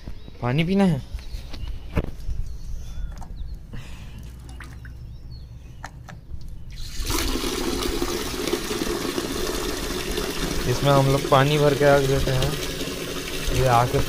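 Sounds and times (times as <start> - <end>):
water pouring into a metal bucket: 6.7 - 14.0.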